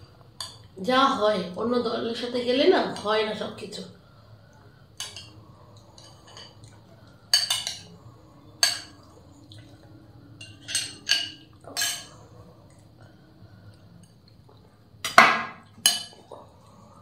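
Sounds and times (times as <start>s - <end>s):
metal spoon clinking on glass bowl: 15.8s - 16.2s.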